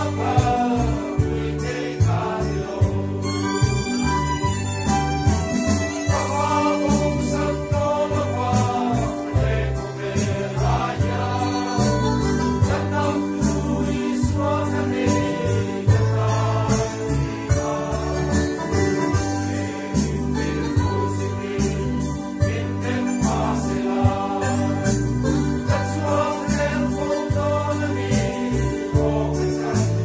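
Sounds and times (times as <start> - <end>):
men's choir singing: 0.0 - 4.4, 6.0 - 30.0.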